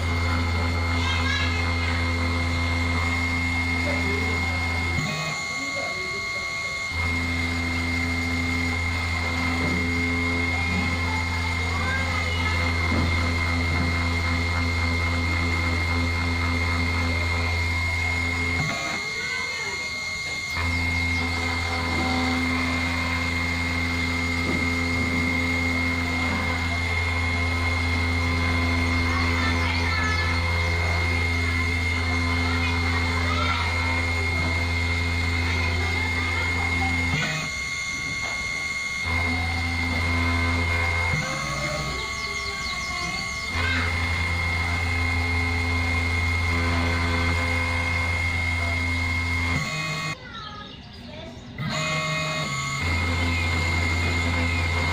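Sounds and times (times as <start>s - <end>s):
router spindle humming and whining: 0.0s - 54.9s.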